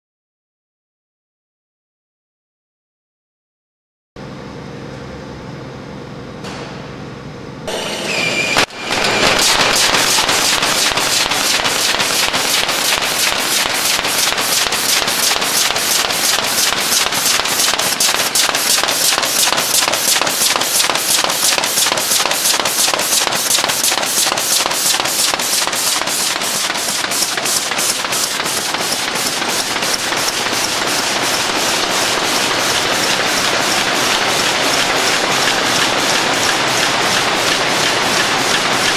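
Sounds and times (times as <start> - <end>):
machine clattering knocks: 9.0 - 38.9.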